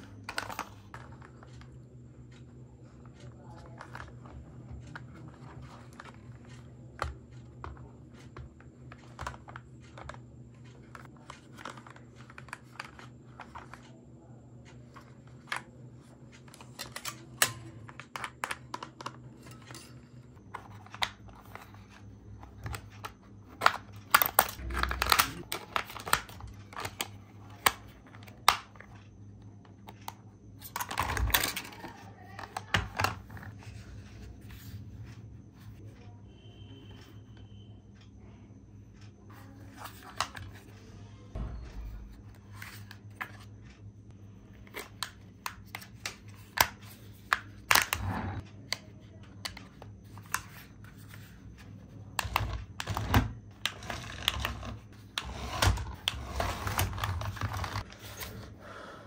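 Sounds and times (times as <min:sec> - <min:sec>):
plastic rubbing and rattling: 0:51.1 - 0:58.1.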